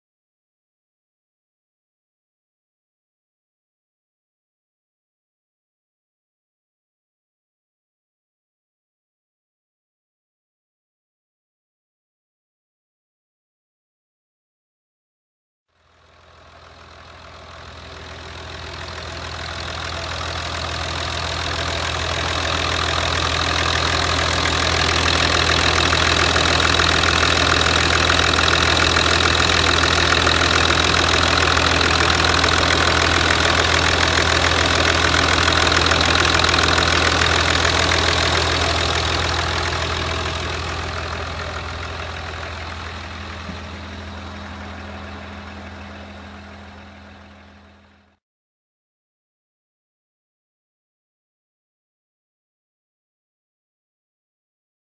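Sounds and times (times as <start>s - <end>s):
diesel engine idling: 15.9s - 48.2s.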